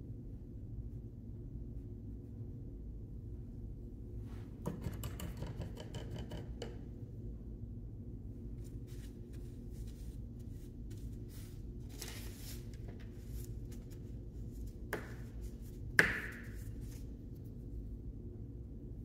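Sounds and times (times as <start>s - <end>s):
low room hum: 0.0s - 19.0s
paper towel rustling: 8.5s - 15.8s.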